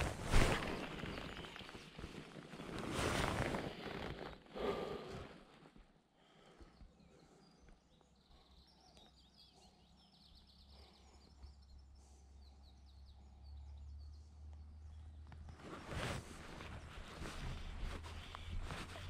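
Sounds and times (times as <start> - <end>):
faint birdsong: 0.0 - 19.0.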